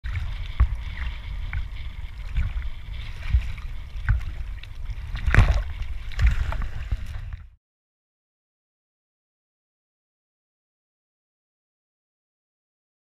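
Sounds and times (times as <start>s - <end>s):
water sloshing against camera: 0.0s - 7.6s.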